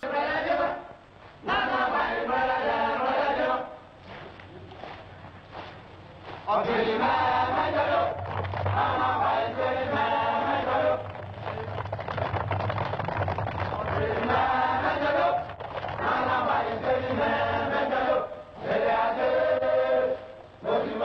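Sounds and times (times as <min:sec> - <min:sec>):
voices chanting in chorus: 0:00.0 - 0:03.9, 0:06.5 - 0:11.6, 0:13.8 - 0:21.0.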